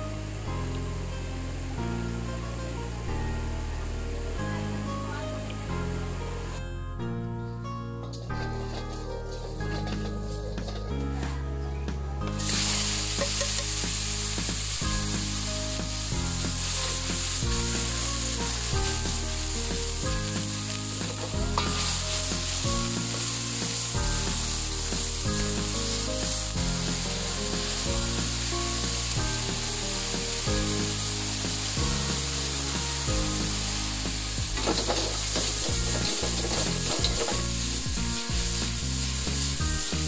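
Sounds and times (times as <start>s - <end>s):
potatoes sizzling in hot oil: 12.3s - 40.0s.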